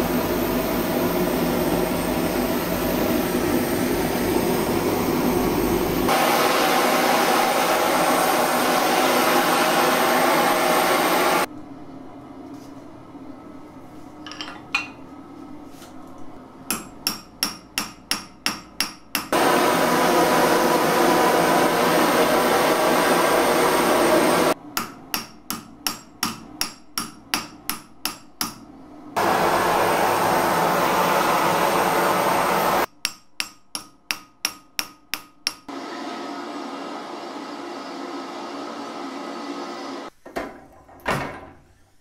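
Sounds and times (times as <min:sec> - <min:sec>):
gas torch rushing: 0:00.0 - 0:11.5, 0:19.3 - 0:24.6, 0:29.2 - 0:32.9
hammer striking metal bar: 0:16.7 - 0:19.4, 0:24.7 - 0:28.6, 0:32.9 - 0:35.7.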